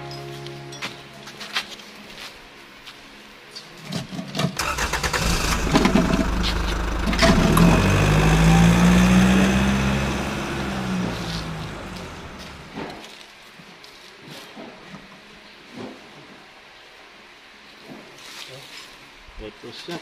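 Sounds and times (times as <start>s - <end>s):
engine cranking with clicks: 4.4s - 8.2s
engine running steady hum: 4.6s - 13.0s.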